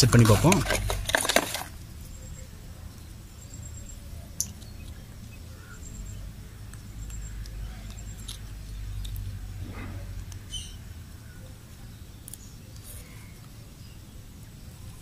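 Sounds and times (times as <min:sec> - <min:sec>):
smartwatch handling: 0:00.0 - 0:01.7.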